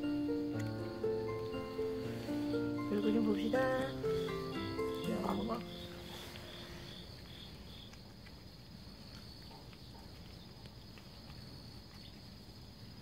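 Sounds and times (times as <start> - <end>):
cat chewing and licking: 3.0 - 13.0.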